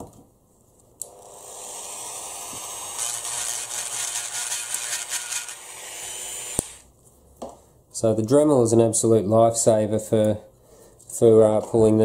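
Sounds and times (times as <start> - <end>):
rotary tool grinding metal: 1.1 - 6.8.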